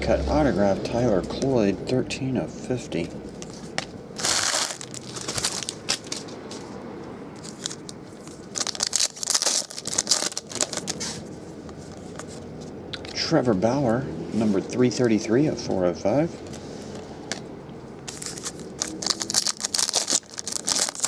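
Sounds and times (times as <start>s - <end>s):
foil wrapper crinkling and tearing: 4.2s - 6.3s, 7.4s - 11.3s, 18.1s - 21.0s
cards being handled: 7.4s - 13.2s, 18.0s - 21.0s.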